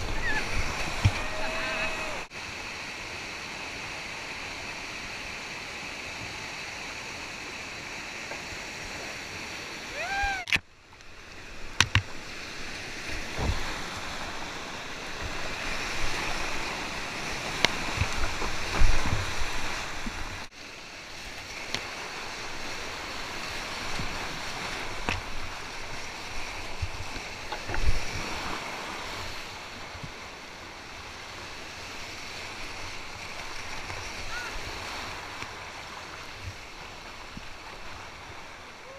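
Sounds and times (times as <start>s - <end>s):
whitewater rapids roaring: 0.0s - 7.8s, 9.2s - 10.6s, 32.4s - 38.9s
dull thumps on kayak: 0.8s - 1.2s.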